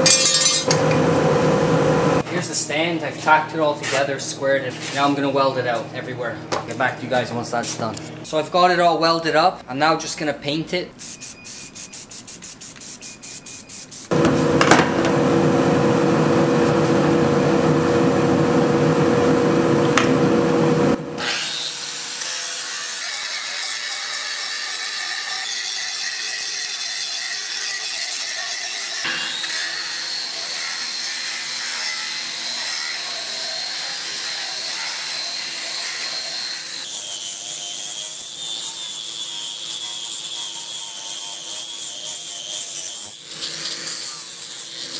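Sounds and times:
spray can rattling: 0:11.0 - 0:14.1
angle grinder on metal: 0:21.2 - 0:44.9.

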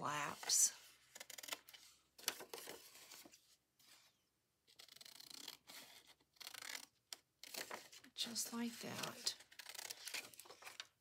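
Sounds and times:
paper rustling: 0:01.7 - 0:04.1, 0:07.4 - 0:11.0.

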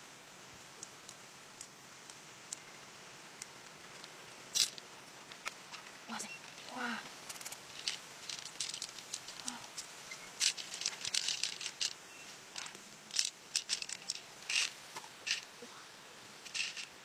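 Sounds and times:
pearls clicking and rattling: 0:03.5 - 0:15.6, 0:16.4 - 0:17.0.

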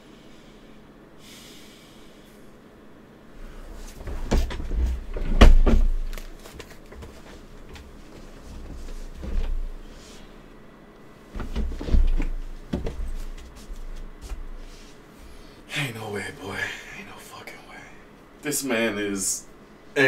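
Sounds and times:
faint breathing: 0:00.0 - 0:02.6, 0:14.6 - 0:15.7
dull thumps at a desk: 0:04.1 - 0:06.1, 0:11.4 - 0:13.6.

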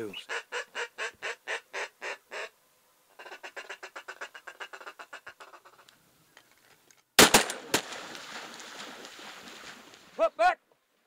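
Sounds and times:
duck call quacks: 0:00.2 - 0:02.5.

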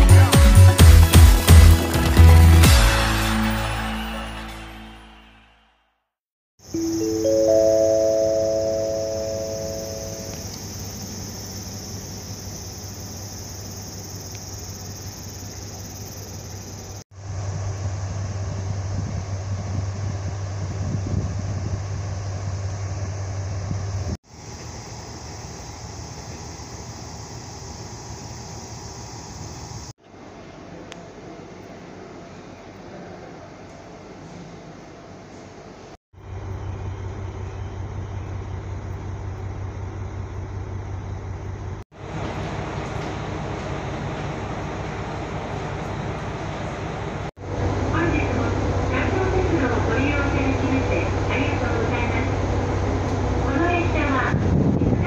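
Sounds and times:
high insect drone: 0:06.6 - 0:29.9, 0:36.2 - 0:42.2
station noise: 0:06.7 - 0:11.4, 0:42.1 - 0:55.0
diesel engine idling: 0:36.2 - 0:54.4.

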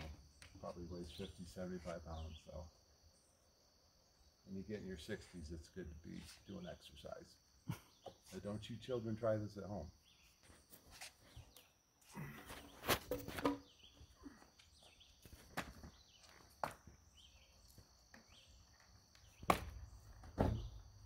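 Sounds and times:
insects trilling: 0:00.0 - 0:21.0
footsteps on concrete: 0:10.4 - 0:11.6, 0:12.5 - 0:19.5
wooden knocks and scuffs: 0:14.8 - 0:17.0, 0:19.2 - 0:20.8.

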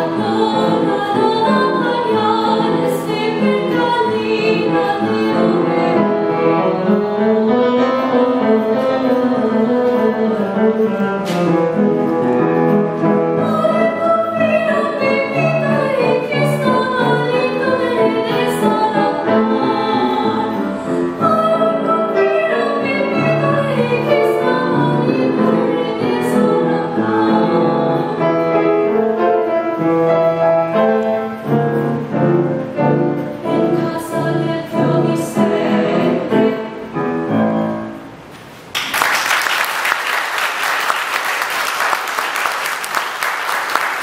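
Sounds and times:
woman singing classical song: 0:00.0 - 0:11.5, 0:13.3 - 0:29.7, 0:32.9 - 0:37.1
piano accompaniment: 0:00.0 - 0:44.0
audience applause: 0:38.7 - 0:44.0.

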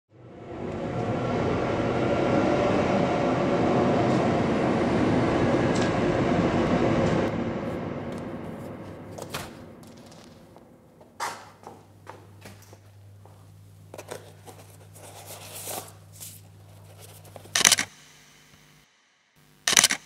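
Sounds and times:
passing train rumbling: 0:00.1 - 0:12.4.

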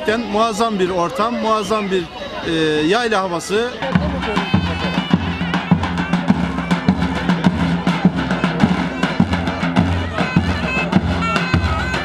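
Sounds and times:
wind instrument piping melody: 0:03.7 - 0:12.0
bass drum beating: 0:03.8 - 0:12.0.

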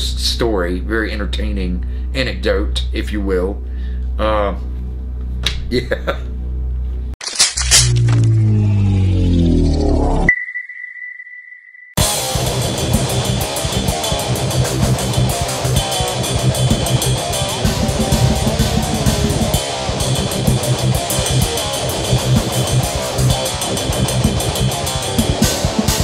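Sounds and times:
loud rock music: 0:12.0 - 0:26.0.

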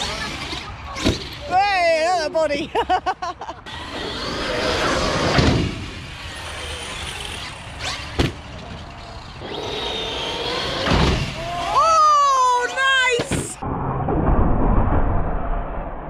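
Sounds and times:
electric toy truck motors whining: 0:03.7 - 0:11.8.

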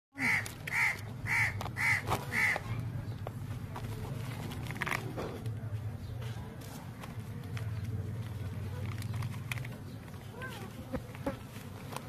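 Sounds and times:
crow cawing: 0:00.2 - 0:02.6.

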